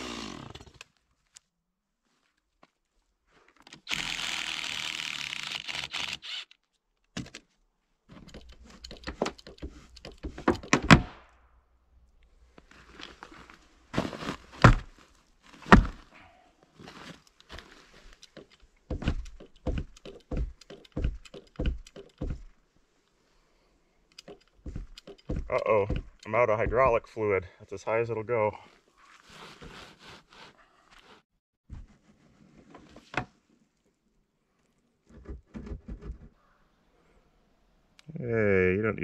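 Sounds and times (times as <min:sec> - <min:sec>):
impact driver running: 0:03.9 - 0:06.4
wooden knocks: 0:08.9 - 0:11.2, 0:18.4 - 0:22.5, 0:24.2 - 0:27.0
boot kicking timber: 0:13.9 - 0:16.1, 0:18.9 - 0:22.5, 0:24.6 - 0:27.1.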